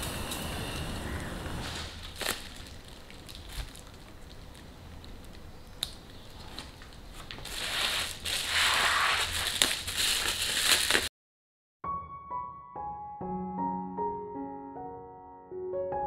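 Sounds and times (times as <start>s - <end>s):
bubble wrap crinkling: 1.2s - 11.1s.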